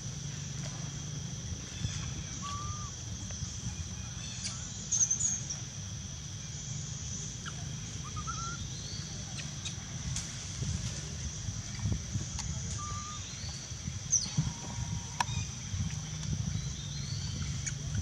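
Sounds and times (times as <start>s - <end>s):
bird chirps: 1.8s - 2.9s, 7.4s - 9.8s.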